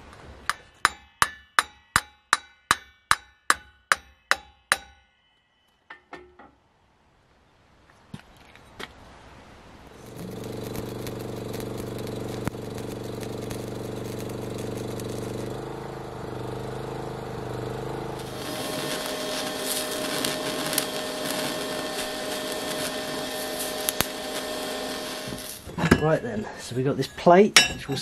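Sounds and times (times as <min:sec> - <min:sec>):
electrical hum with crackle: 0:09.8 - 0:26.2
welding arc hissing: 0:09.9 - 0:25.9
welding torch whine: 0:09.9 - 0:26.0.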